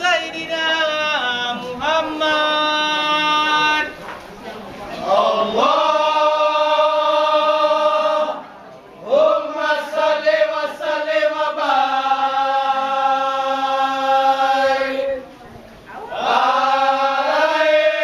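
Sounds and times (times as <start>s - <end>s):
men chanting in unison: 5.0s - 8.4s, 9.0s - 15.1s.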